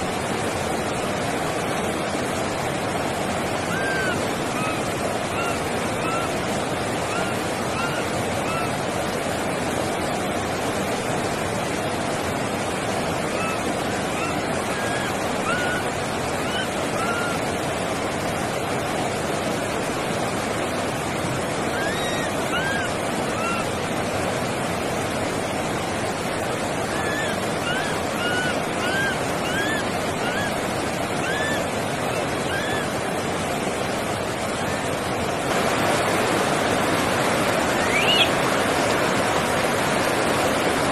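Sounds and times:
steady rushing noise: 0.0 - 40.9
baby macaque coo calls: 3.7 - 4.8, 13.4 - 13.6, 14.2 - 17.4, 26.9 - 30.5, 31.2 - 31.6, 32.5 - 32.9, 37.8 - 38.3.

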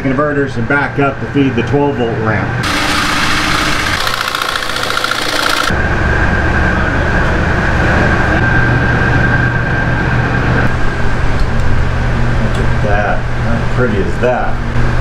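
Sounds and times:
machine hum: 2.5 - 15.0
high whine: 2.6 - 13.5.

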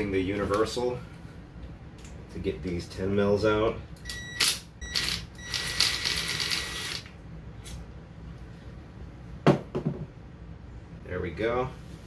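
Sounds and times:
cordless drill whirring: 5.5 - 7.0.

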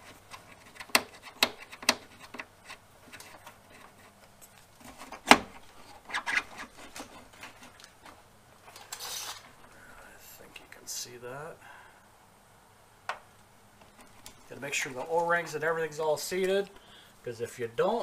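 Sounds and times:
clicks and knocks of parts handled: 0.0 - 9.7
cable scraping rustle: 0.0 - 9.8, 13.8 - 16.8.

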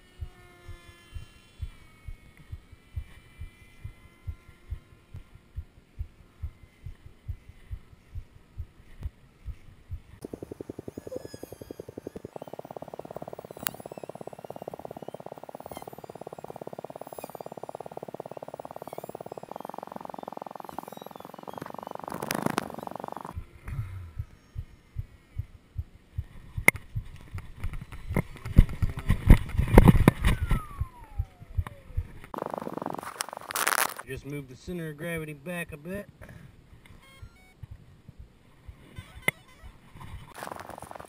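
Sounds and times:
model jet electric motor buzzing: 0.0 - 5.3, 10.2 - 23.4
low thumping: 0.2 - 32.4.

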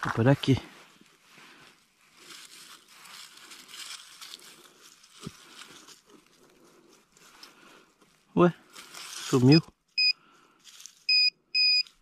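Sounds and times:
tool scraping soil and leaves: 0.0 - 7.5, 8.7 - 9.6.

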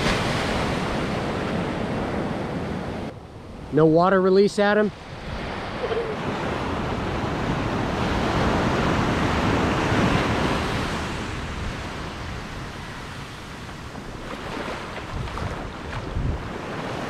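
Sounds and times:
surf washing up a beach: 0.0 - 17.0
wind buffeting microphone: 4.9 - 17.0.

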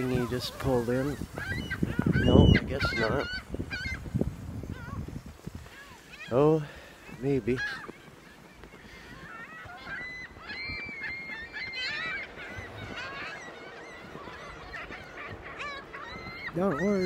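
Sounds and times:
gulls calling: 0.0 - 17.0.

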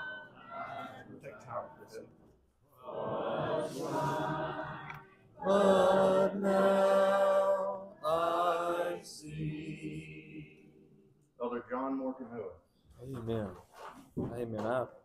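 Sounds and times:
congregation singing a hymn: 2.8 - 10.9.

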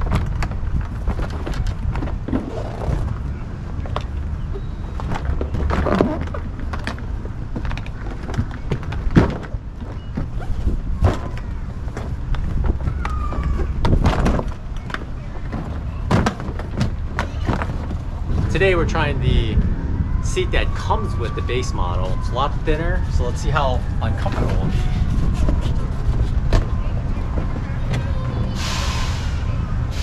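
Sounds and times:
plastic crackling and rustling: 4.8 - 18.6
steady low rumble: 13.7 - 30.0.

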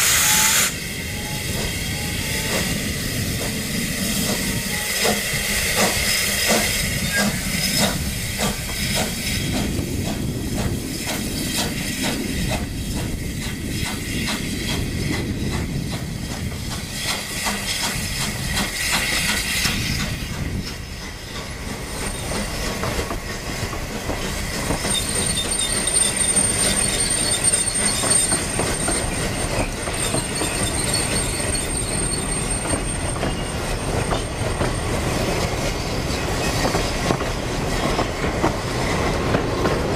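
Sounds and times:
high wheel squeal: 0.0 - 9.5, 17.2 - 22.8, 24.2 - 35.0
steam locomotive exhaust chuffs: 0.0 - 39.9.

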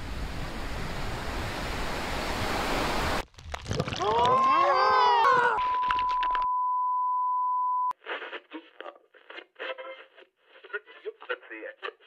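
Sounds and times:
man laughing and yelling: 4.0 - 5.7
electronic beep: 5.6 - 7.9.

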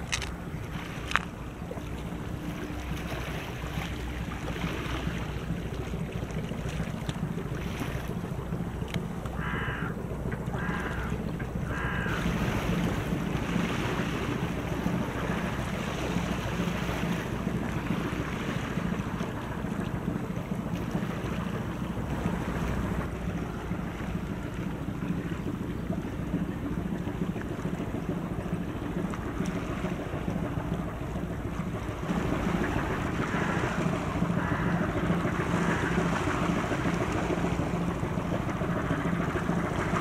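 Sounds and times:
ship engine drone: 0.0 - 40.0
water washing: 0.0 - 40.0
bird calling: 9.4 - 12.3, 32.7 - 36.1.

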